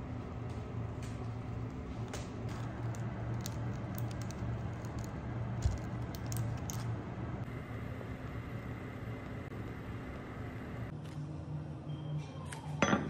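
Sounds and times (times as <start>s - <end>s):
steady low hum: 0.0s - 12.1s
parchment paper rustling: 1.6s - 6.9s.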